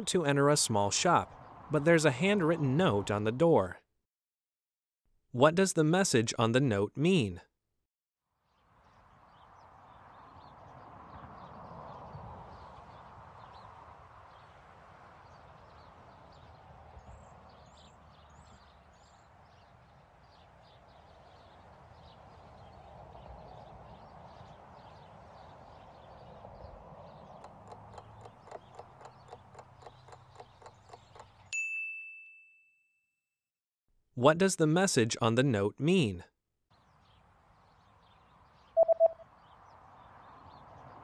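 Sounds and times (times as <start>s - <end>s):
countdown clock ticking: 27.5s - 31.4s
high chirps: 38.8s - 39.2s.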